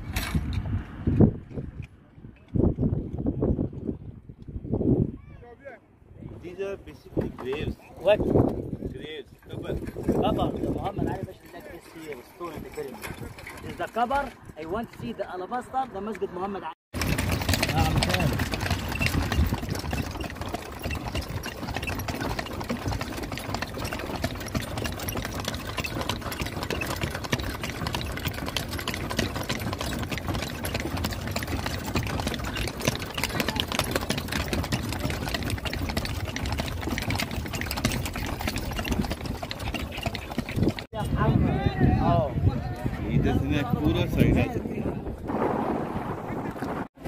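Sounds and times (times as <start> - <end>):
horse-drawn carriage rattling: 6.5 - 42.2.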